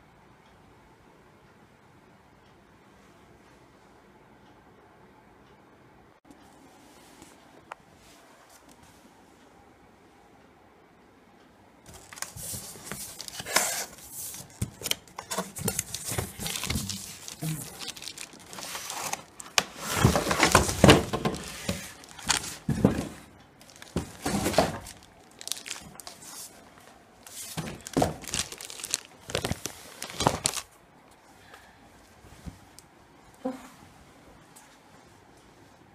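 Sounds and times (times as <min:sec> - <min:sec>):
plastic wrapping crinkling: 0:11.9 - 0:30.8.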